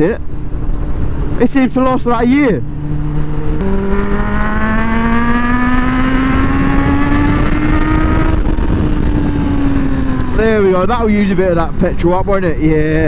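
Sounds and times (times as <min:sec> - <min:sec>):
wind rushing: 0:00.3 - 0:12.2
motorcycle engine accelerating: 0:02.3 - 0:11.4.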